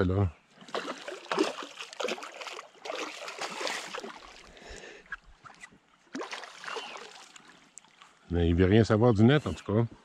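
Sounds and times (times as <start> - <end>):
water lapping against canoe: 0.5 - 8.2.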